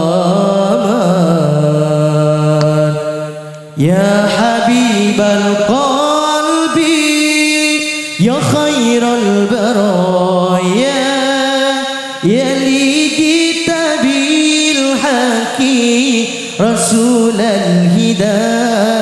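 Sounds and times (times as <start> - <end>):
devotional singing: 0.0 - 19.0.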